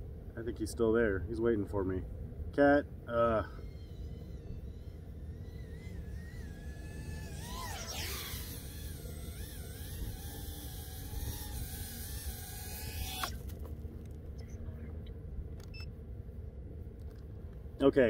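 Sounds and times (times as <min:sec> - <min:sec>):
steady low rumble: 0:00.0 - 0:18.0
quadcopter motors whining: 0:02.4 - 0:13.9.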